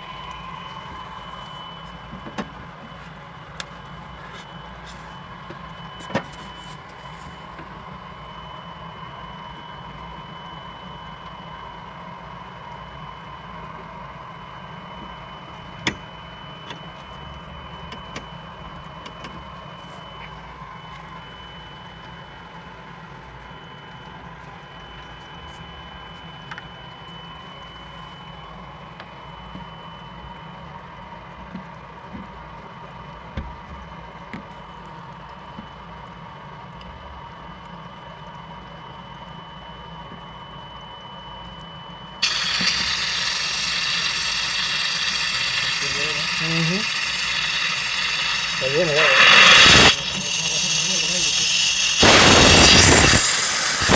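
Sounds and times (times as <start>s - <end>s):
machinery hum with high whine: 0.0s - 53.9s
compressed air hissing: 42.2s - 53.9s.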